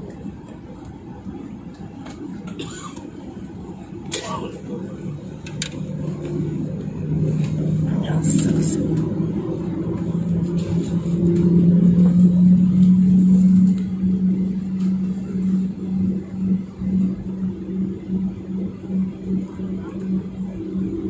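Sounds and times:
jet engines low drone: 0:00.0 - 0:21.0.

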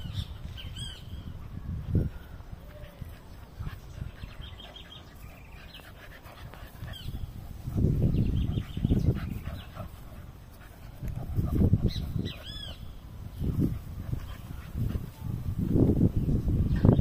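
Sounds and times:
puppies snuffling: 0:02.9 - 0:15.3.

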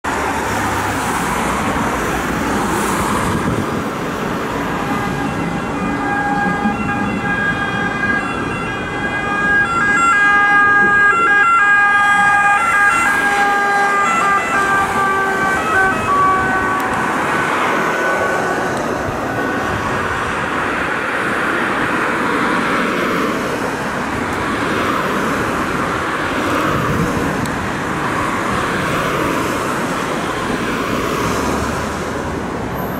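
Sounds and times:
road traffic passing: 0:00.0 - 0:32.9
ambulance two-tone siren: 0:04.6 - 0:21.1.

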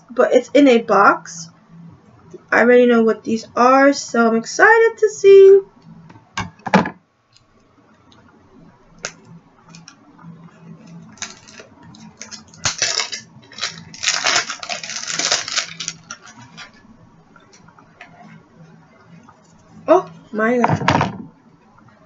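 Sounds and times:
plastic wrap crinkling and tearing: 0:10.8 - 0:16.8.

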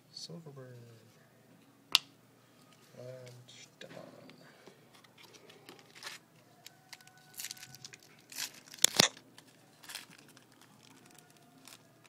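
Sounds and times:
wrapper tearing and crinkling: 0:05.2 - 0:06.2, 0:06.8 - 0:12.0.

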